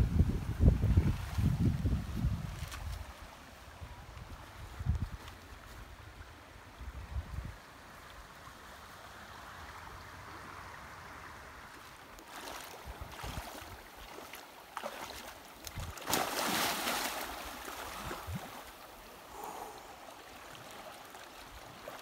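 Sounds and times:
river flowing over stones: 0:07.6 - 0:22.0
water sloshing around legs: 0:11.7 - 0:19.0
big water splash: 0:14.8 - 0:18.7.

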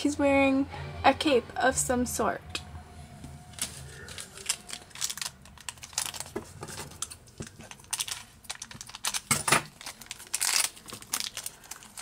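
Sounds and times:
plastic bag crinkling: 0:03.6 - 0:12.0.

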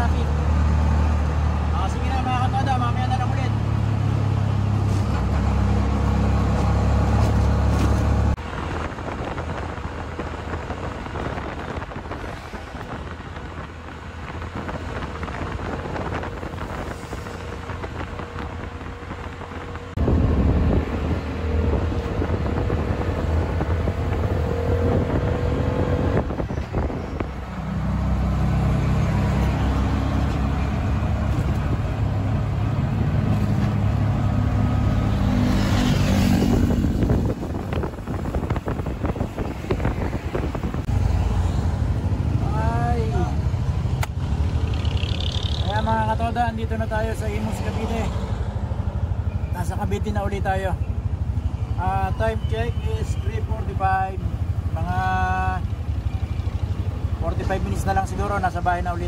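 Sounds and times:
road noise: 0:00.0 - 0:59.0
wind noise: 0:04.7 - 0:45.8
three-wheeler engine running: 0:41.8 - 0:46.0, 0:54.0 - 0:57.7.

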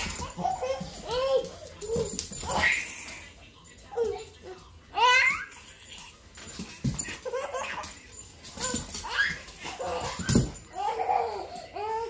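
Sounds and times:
dog scrambling on hardwood floor: 0:06.4 - 0:10.7.

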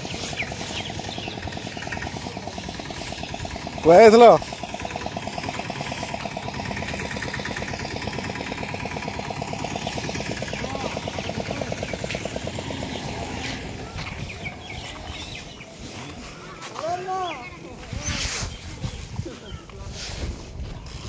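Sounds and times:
motorboat engine pulsing: 0:00.0 - 0:15.8.

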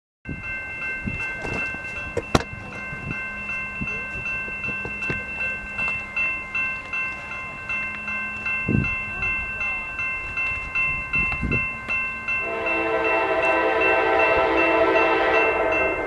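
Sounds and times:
distant train horn: 0:12.4 - 0:16.0.

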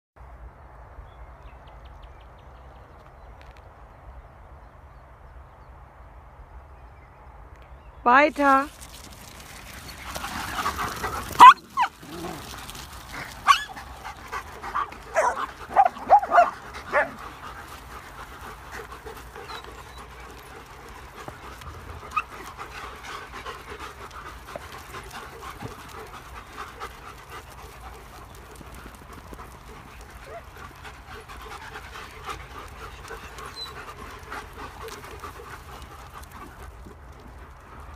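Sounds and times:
dogs panting: 0:08.4 - 0:37.9
dogs barking: 0:10.2 - 0:12.5, 0:13.2 - 0:17.4.

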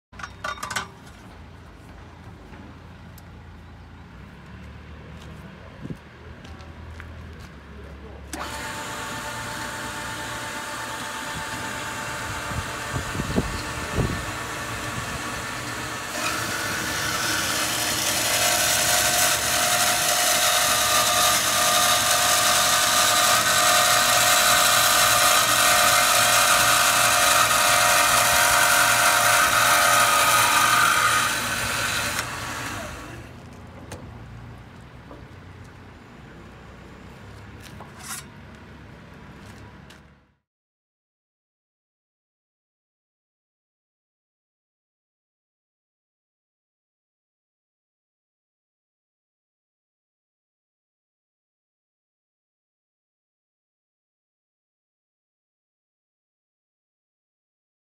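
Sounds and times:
band saw running: 0:08.3 - 0:33.4.

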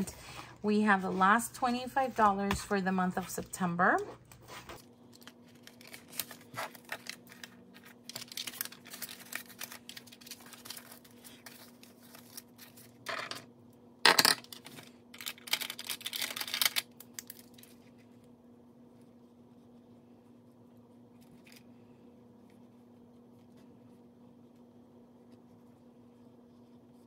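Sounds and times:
paper rustling and crinkling: 0:04.3 - 0:13.1, 0:14.6 - 0:18.2.

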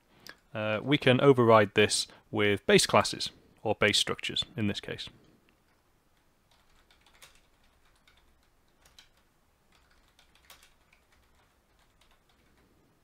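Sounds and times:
typing on computer keyboard: 0:06.1 - 0:12.7.

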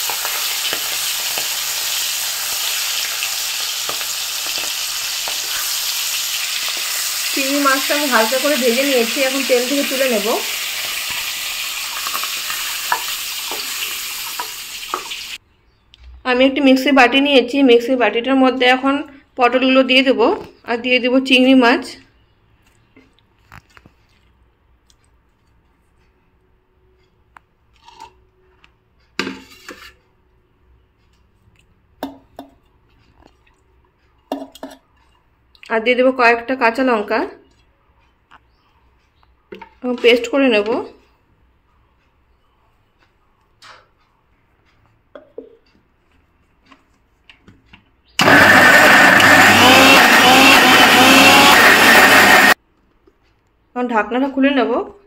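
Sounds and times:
mixer grinder whining: 0:48.2 - 0:52.6.

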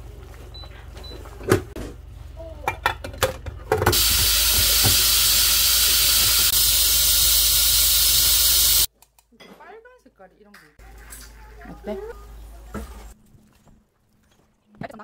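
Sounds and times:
steam hissing from pressure valve: 0:03.9 - 0:08.9.

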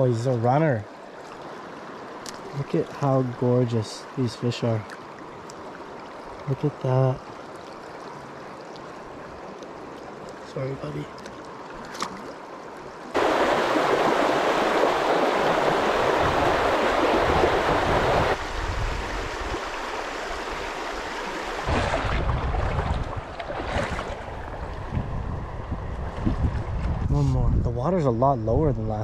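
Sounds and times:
river water rushing over stones: 0:07.3 - 0:24.9.

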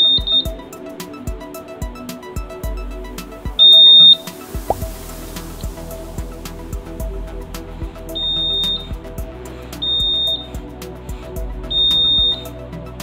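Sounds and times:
background music with steady beat: 0:00.0 - 0:13.0.

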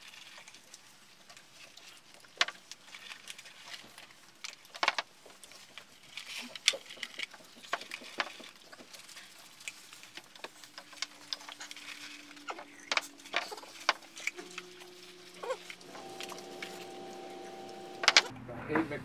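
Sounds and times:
chewing: 0:00.0 - 0:18.3
paper wrappers crinkling: 0:00.0 - 0:18.3
faint steady hum: 0:09.0 - 0:18.4.

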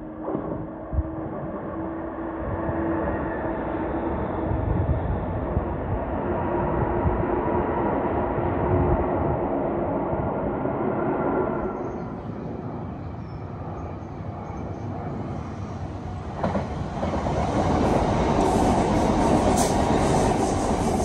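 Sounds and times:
train rumbling: 0:00.0 - 0:21.0.

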